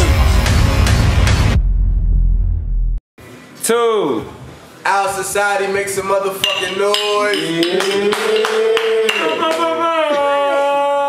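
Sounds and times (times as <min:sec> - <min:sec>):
deep bass rumble: 0:00.0 - 0:03.0.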